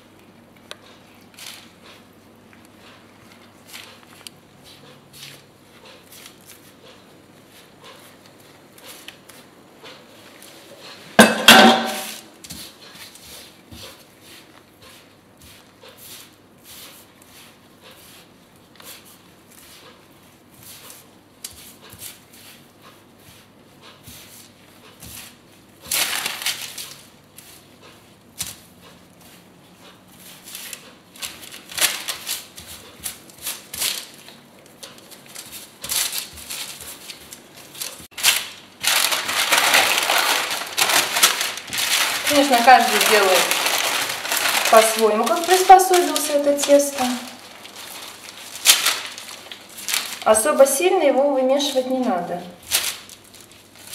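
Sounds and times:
hands mixing crumbly dough: 0.0 - 53.9
paper crinkling: 24.4 - 27.8, 30.3 - 50.8, 51.6 - 53.9.

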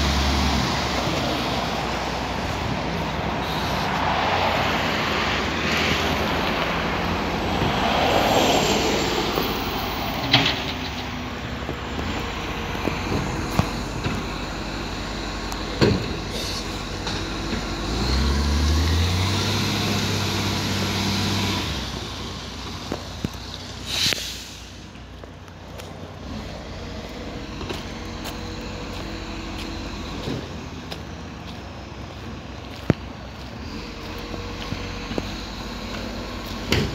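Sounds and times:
garbage truck diesel engine: 0.0 - 36.9
air brake hiss: 3.4 - 4.0, 16.3 - 16.8, 23.8 - 24.9.

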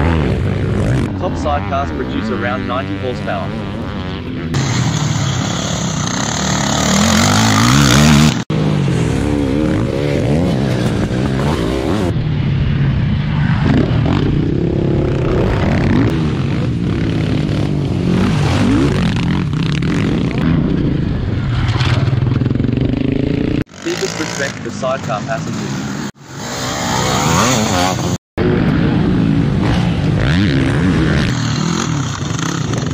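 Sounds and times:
motorcycle engines revving: 0.0 - 32.9
quad engine revving: 4.5 - 12.1, 23.6 - 25.0, 26.4 - 28.2.

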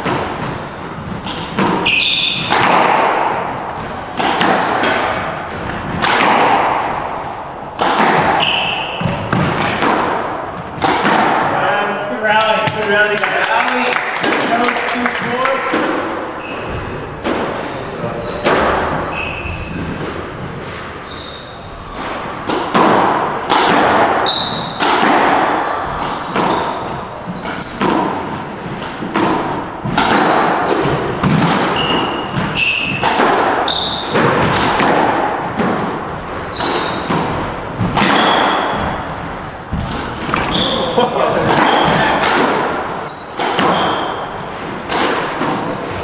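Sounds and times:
shoes squeaking on wooden floor: 0.0 - 9.5, 15.2 - 22.8, 24.2 - 24.8, 26.2 - 44.5
squash ball cracking off walls: 0.0 - 11.6, 18.4 - 21.0, 22.0 - 45.8.

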